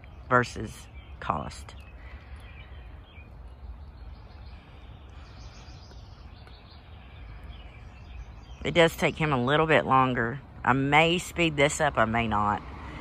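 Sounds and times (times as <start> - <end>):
faint bird chirps: 0.0 - 9.4
outdoor background noise: 0.0 - 13.0.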